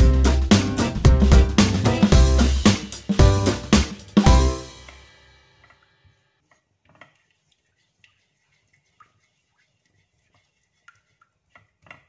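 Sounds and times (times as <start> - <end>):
spatula scraping a pan: 7.1 - 12.0.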